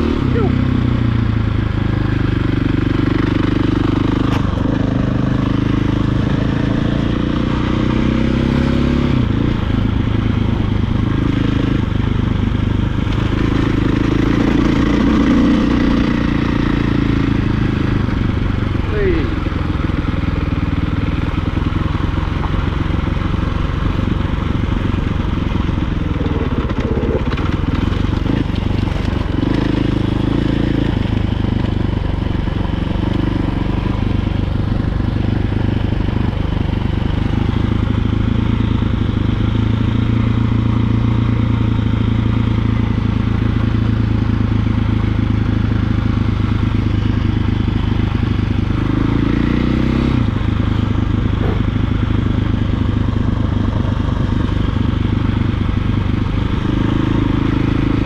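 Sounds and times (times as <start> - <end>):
dirt bike engine revving: 2.1 - 10.0, 13.0 - 20.7, 26.2 - 42.7, 45.9 - 58.0.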